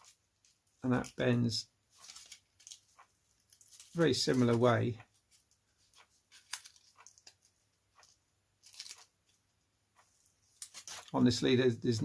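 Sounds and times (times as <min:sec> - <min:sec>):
foam strip crackling: 0:01.9 - 0:09.4, 0:10.2 - 0:11.4.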